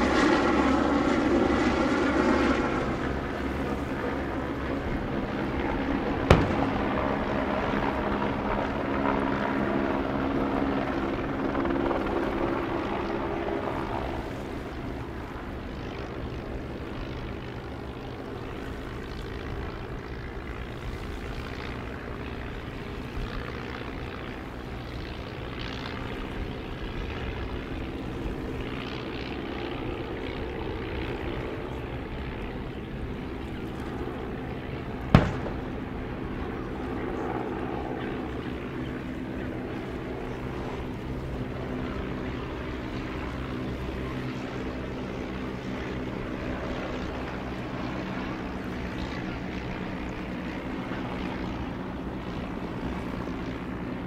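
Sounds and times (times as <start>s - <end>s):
propeller engines droning: 0.0s - 54.0s
gun firing boom: 6.3s - 7.0s, 35.2s - 35.8s.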